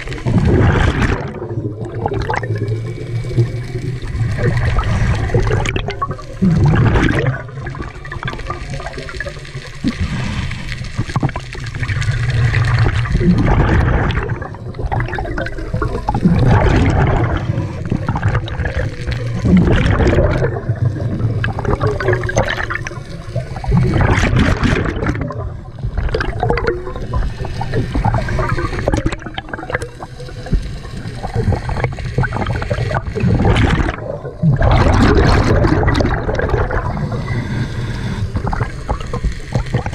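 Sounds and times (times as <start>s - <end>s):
bubbling rush of exhaled air: 0.0s - 39.9s
diver breathing through regulator: 36.8s - 38.8s.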